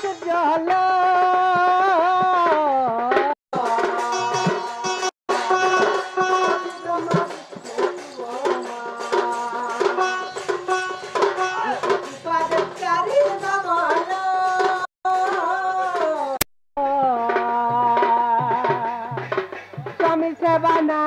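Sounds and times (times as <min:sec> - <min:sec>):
hand-drum beats: 0:00.0 - 0:21.0
harmonium chords and melody: 0:04.0 - 0:07.3, 0:09.9 - 0:12.2.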